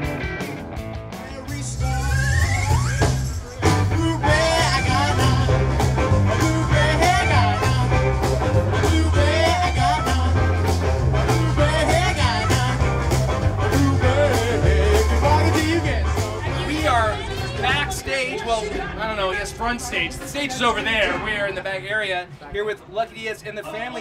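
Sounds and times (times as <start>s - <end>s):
electric guitars: 0.0s - 18.1s
bass guitar: 0.0s - 19.0s
steady drumbeat: 0.0s - 21.2s
woman singing lead: 3.9s - 10.6s.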